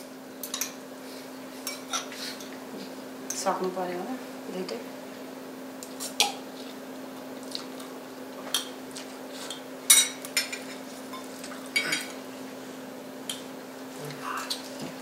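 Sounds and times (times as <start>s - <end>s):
cutlery against bowls: 0.4s - 0.8s, 8.4s - 12.1s.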